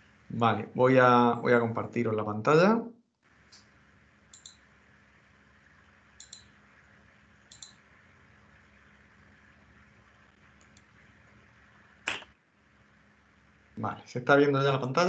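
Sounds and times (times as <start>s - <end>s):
faint computer mouse clicks: 4.3s - 4.6s, 6.2s - 6.5s, 7.5s - 7.8s, 10.6s - 10.9s.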